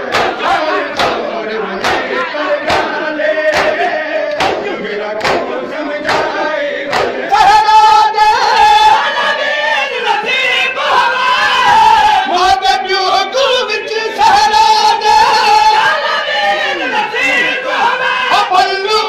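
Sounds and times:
crowd slapping chests in unison: 0.0s - 12.3s
crowd of men chanting: 0.0s - 19.0s
men singing: 0.0s - 19.0s.

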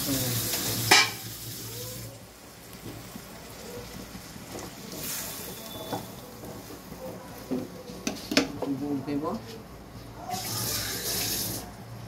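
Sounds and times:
curry sizzling and bubbling: 0.0s - 8.7s, 9.6s - 12.0s
wooden spatula stirring: 2.8s - 8.8s.

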